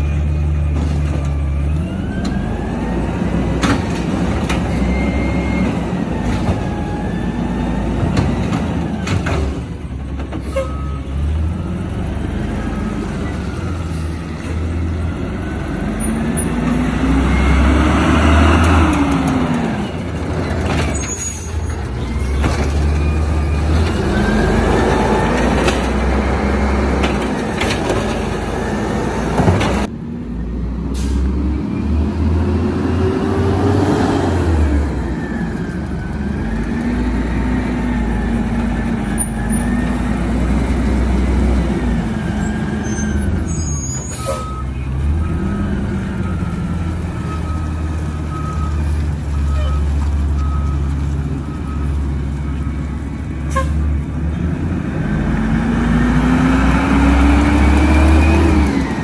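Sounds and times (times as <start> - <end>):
garbage truck engine revving: 11.0 - 29.9, 30.7 - 59.0
air brakes hissing: 30.9 - 31.4, 42.9 - 44.5.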